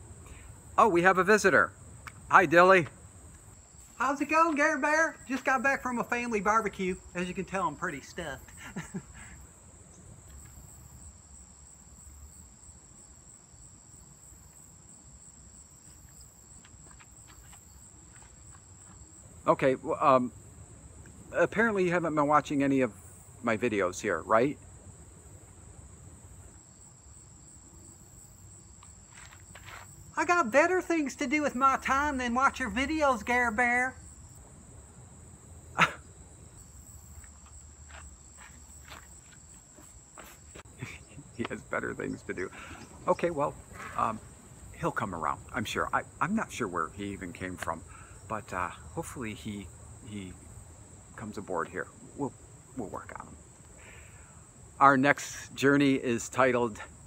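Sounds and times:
crickets trilling: 0.0 - 57.0
high-pitched insect chorus: 0.0 - 57.0
footsteps on gravel: 15.9 - 19.1, 28.8 - 30.0, 37.1 - 40.8
sharp scuff: 28.8 - 30.0, 37.2 - 40.7.

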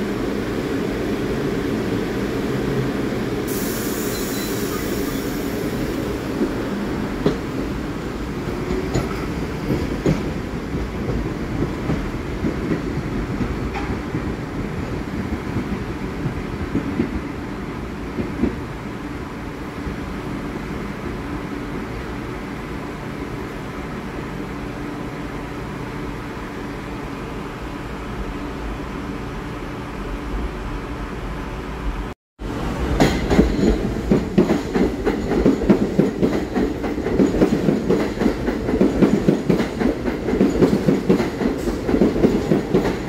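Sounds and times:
subway train rumble: 0.0 - 43.0
brief high hiss: 3.5 - 5.6.

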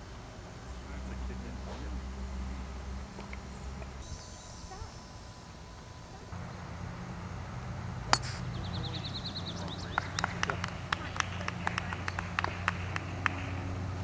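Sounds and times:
golf club striking ball: 8.1 - 8.6.

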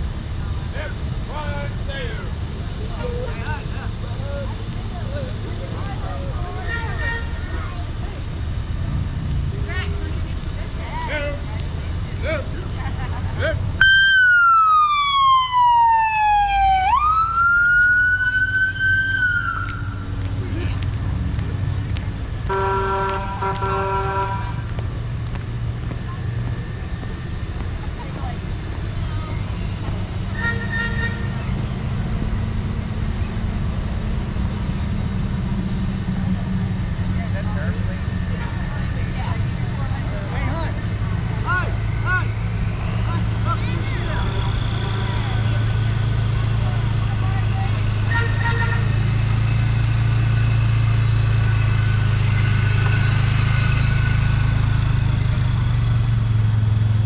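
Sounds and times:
large vehicle engine running: 0.0 - 13.8, 18.2 - 57.0
vehicle horn toot: 22.5 - 24.6, 30.3 - 31.5, 48.1 - 49.0.

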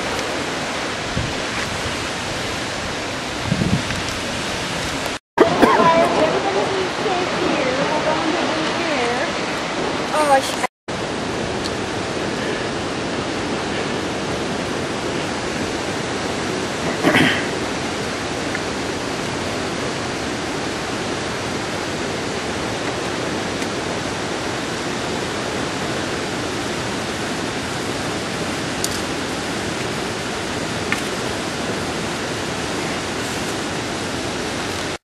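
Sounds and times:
waterfall rushing: 0.0 - 35.0.

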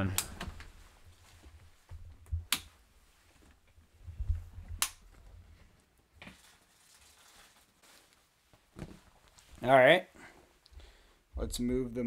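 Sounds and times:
handling thumps and knocks: 8.7 - 9.2.

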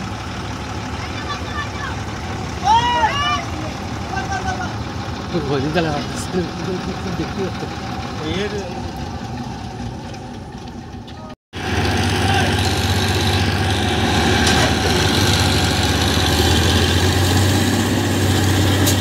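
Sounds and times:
diesel engines running: 0.0 - 19.0.

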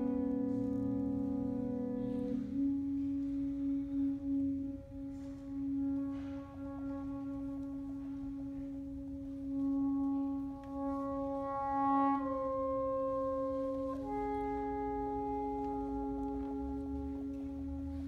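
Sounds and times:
saxophone quartet holding chords: 0.0 - 18.0.

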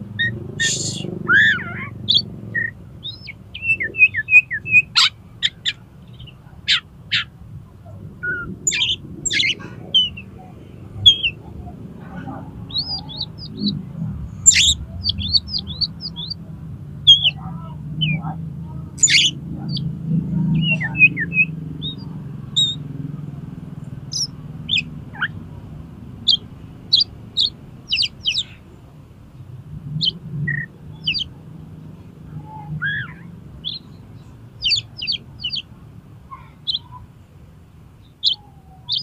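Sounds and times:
bird singing sharp chips: 8.2 - 10.3, 14.4 - 16.4, 17.1 - 17.4, 19.0 - 19.9, 20.6 - 22.8, 24.1 - 25.3, 26.3 - 28.6, 32.6 - 35.7, 36.4 - 37.0, 38.0 - 39.0.

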